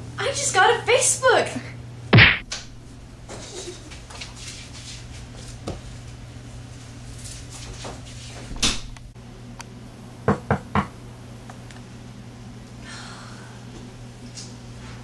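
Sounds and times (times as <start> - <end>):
faint room hum: 0.0 - 15.0
sharp loud thump: 2.1 - 2.8.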